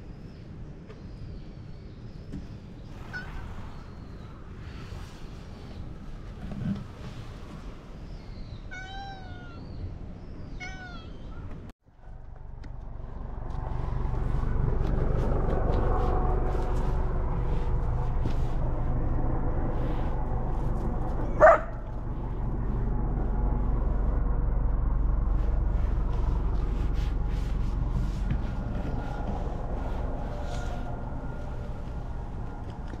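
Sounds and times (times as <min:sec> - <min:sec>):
steady low rumble: 0:09.4 - 0:33.0.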